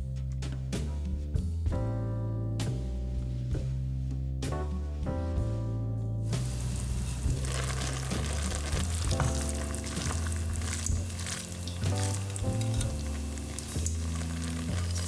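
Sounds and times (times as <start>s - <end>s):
background music: 0.0s - 15.0s
pasta sizzling and bubbling in a pot: 6.3s - 15.0s.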